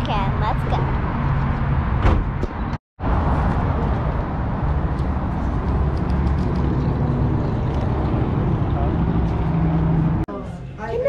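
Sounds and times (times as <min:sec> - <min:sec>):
sharp knock: 0:02.0 - 0:02.6.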